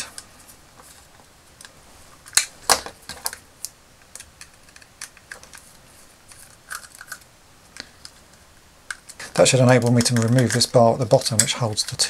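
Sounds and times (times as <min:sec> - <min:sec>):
screwdriver and plastic parts clicking: 0:08.9 - 0:12.0.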